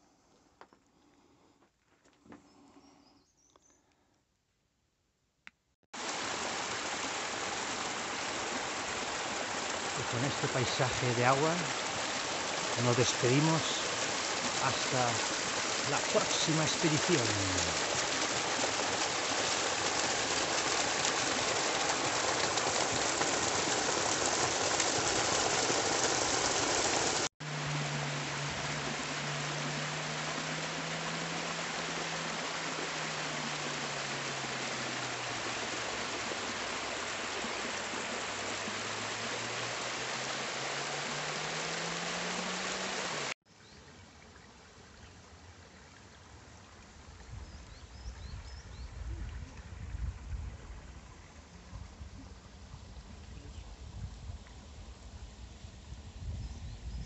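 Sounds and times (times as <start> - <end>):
water rushing down rock channel: 6.0 - 43.4.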